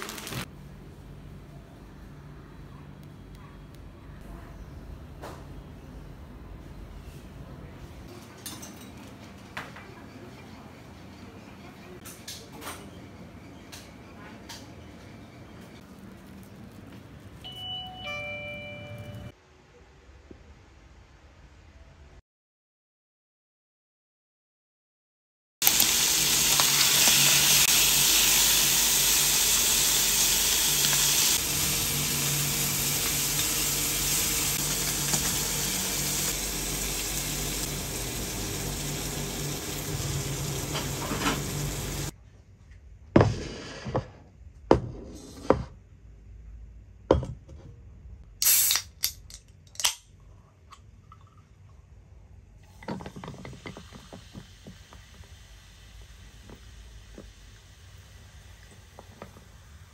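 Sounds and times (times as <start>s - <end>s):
meat sizzling in a frying pan: 0.0s - 0.5s, 25.6s - 42.1s.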